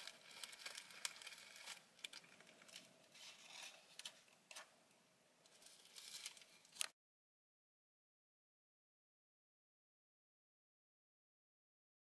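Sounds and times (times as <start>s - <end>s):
small clicks and crackles: 0.0s - 4.7s, 5.4s - 7.0s.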